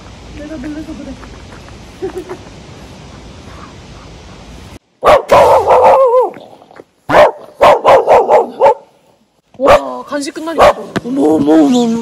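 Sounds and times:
dog barking: 5.0s - 6.3s, 7.1s - 9.0s, 10.6s - 10.9s
dog yelp: 5.0s - 6.3s, 7.1s - 8.8s.

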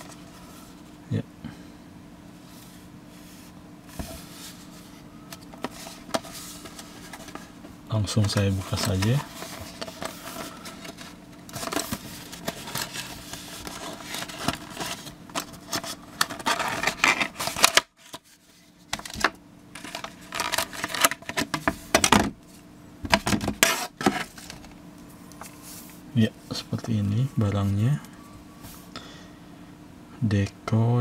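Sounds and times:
plastic packaging crinkling: 8.2s - 18.2s, 19.0s - 21.5s.

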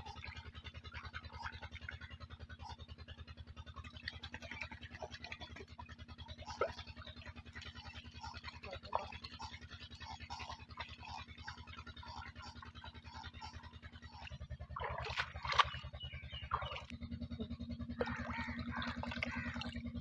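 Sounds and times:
water splashing from a spout: 0.0s - 17.0s, 18.0s - 20.0s
fast low pulsing: 0.0s - 20.0s
running water: 3.8s - 15.9s, 18.0s - 19.8s
sharp water splashes: 6.4s - 16.9s, 18.0s - 19.8s.

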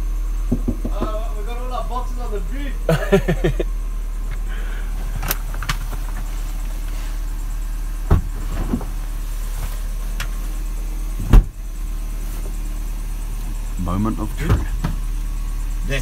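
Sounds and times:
car engine idling: 0.0s - 16.0s
knocks inside car: 0.5s - 1.2s, 8.0s - 9.0s, 11.2s - 11.6s
car door shutting: 5.1s - 7.3s, 7.9s - 10.4s, 11.1s - 11.8s, 14.3s - 15.1s.

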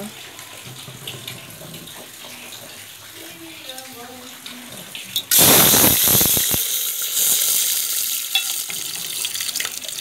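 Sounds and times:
spices sizzling in hot oil: 3.6s - 10.0s.

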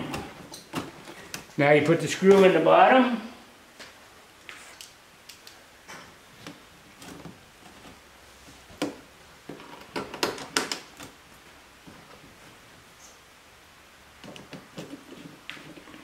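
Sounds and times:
plastic mud flap clicking and knocking: 8.8s - 11.2s.

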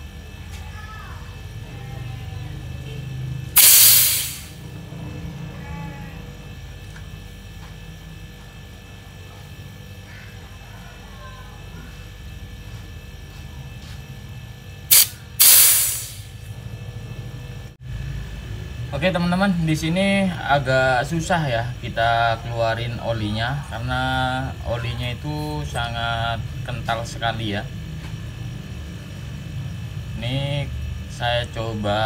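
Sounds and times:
steady low hum: 0.0s - 32.0s
gas hissing through tubing: 3.6s - 4.6s, 14.9s - 16.4s.

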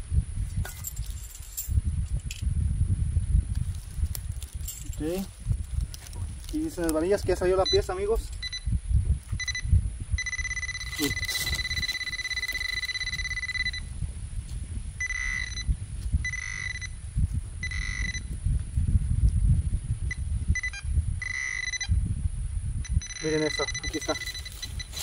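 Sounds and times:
hands digging in dirt: 3.6s - 7.1s
pinpointer beeping: 7.4s - 14.0s, 15.0s - 17.0s, 17.6s - 18.4s, 20.0s - 22.0s, 22.8s - 25.0s.

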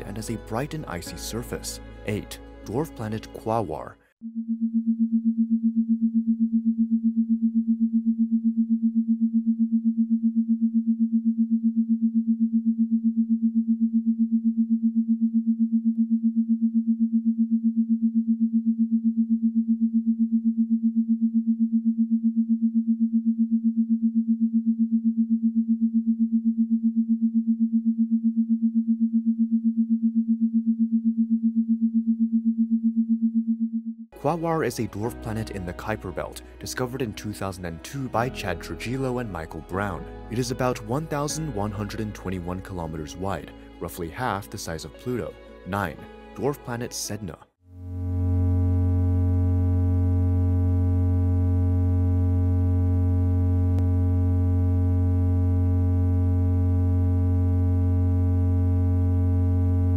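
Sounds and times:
pulsing low electronic drone: 47.8s - 59.9s.

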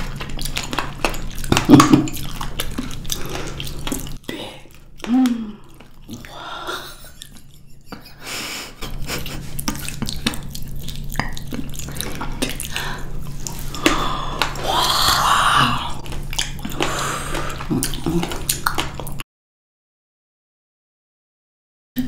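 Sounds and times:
wet chewing of berries: 0.0s - 6.4s, 8.9s - 19.2s
sticky mouth clicks: 9.3s - 19.2s.

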